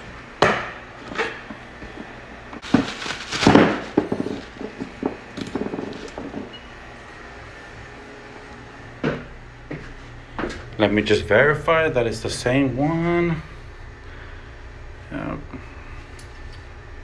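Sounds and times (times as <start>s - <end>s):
plastic packaging rustling: 2.6s - 6.6s.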